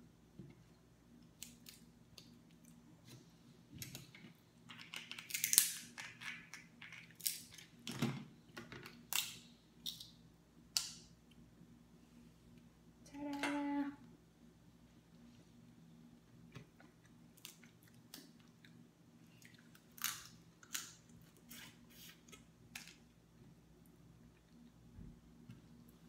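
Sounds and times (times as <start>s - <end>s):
crab shells cracking: 4.7s - 7.7s.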